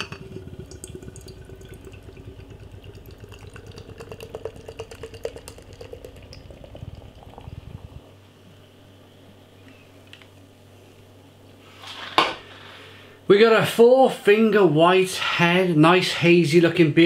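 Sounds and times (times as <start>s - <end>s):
beer pouring into a glass: 0.0s - 8.2s.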